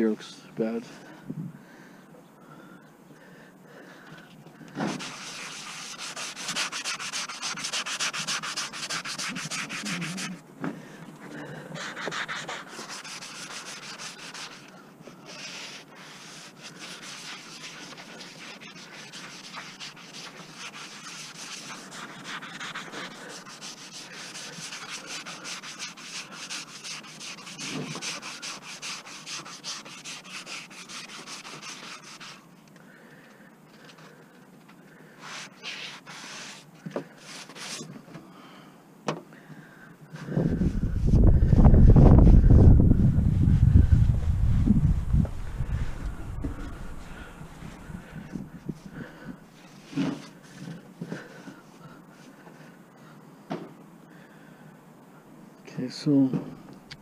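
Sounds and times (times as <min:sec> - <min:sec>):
hand sanding sheet metal: 0:04.8 - 0:10.4, 0:11.8 - 0:32.5, 0:35.2 - 0:36.6.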